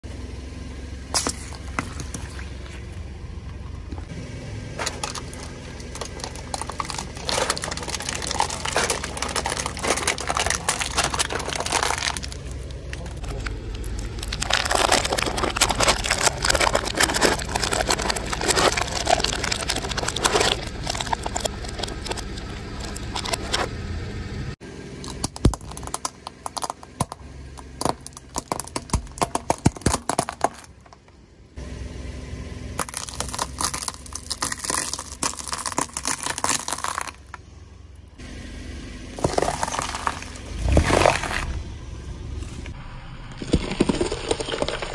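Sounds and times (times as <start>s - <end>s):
car tyre rolling on asphalt: 0.0s - 44.9s
foil trays crumpling: 4.8s - 23.7s, 32.8s - 37.2s.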